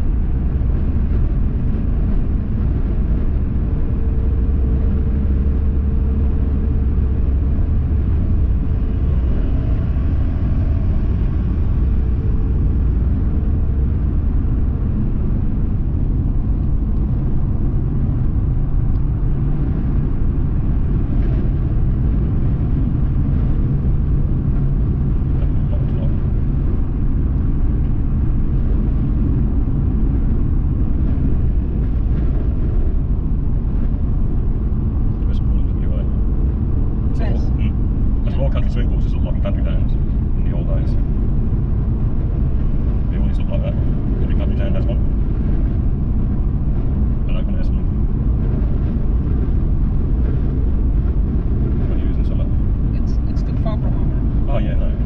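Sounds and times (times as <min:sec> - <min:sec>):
car engine and tyre rumble: 0:00.0 - 0:55.0
faint hum: 0:00.0 - 0:55.0.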